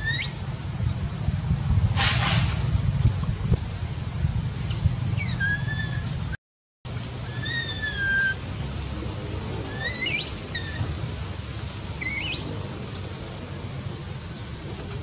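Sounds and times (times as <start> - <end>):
high whistle-like animal calls: 0.0 - 0.7, 5.2 - 6.1, 7.2 - 8.4, 9.6 - 10.9, 12.0 - 12.8.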